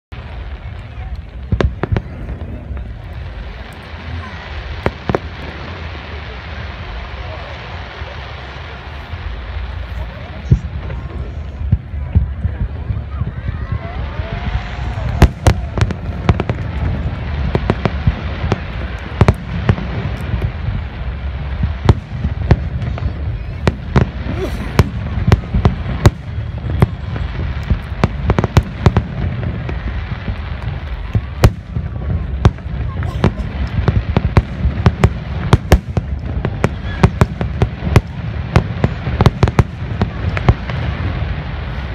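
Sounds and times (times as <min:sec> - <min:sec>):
steady low rumble: 0:00.1 - 0:41.9.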